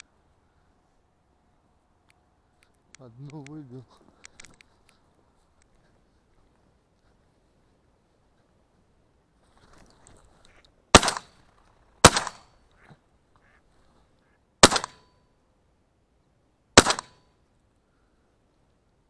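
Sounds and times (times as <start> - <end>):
man speaking: 3.0 - 4.0
shotgun shots: 10.9 - 11.4, 12.0 - 12.5, 14.6 - 15.1, 16.8 - 17.2.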